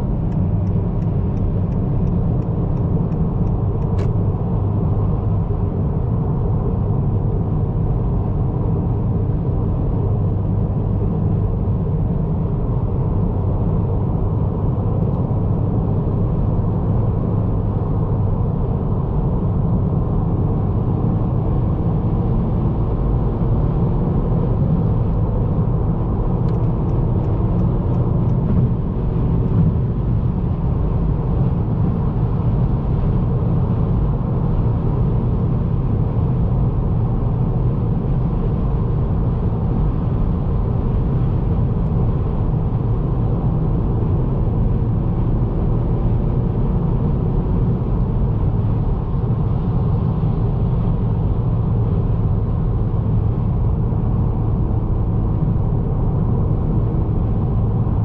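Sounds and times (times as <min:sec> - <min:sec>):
car engine humming: 0:00.0 - 0:06.8.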